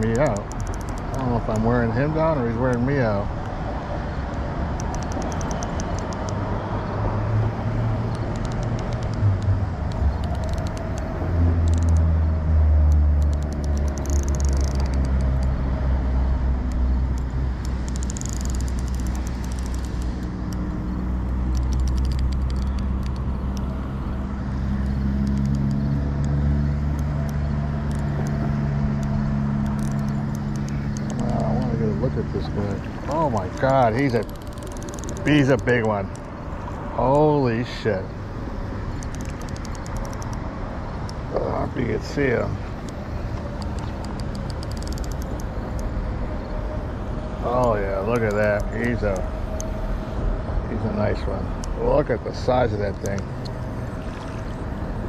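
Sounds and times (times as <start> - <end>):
vehicle engine humming: 0.0 - 55.0
light clicking: 0.1 - 1.7, 29.0 - 31.7, 42.8 - 45.9, 47.6 - 49.8.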